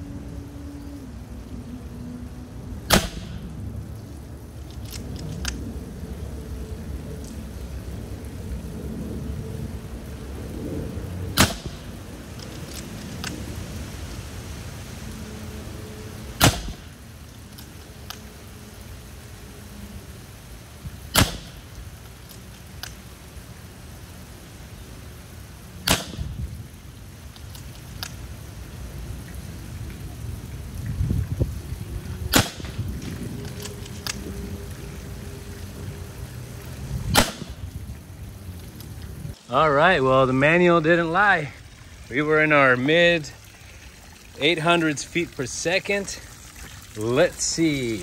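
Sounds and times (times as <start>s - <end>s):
air rifle shot crack: 2.9s - 3.4s, 11.4s - 11.9s, 16.4s - 16.9s, 21.1s - 21.7s, 25.8s - 26.4s, 32.3s - 32.8s, 37.1s - 37.6s.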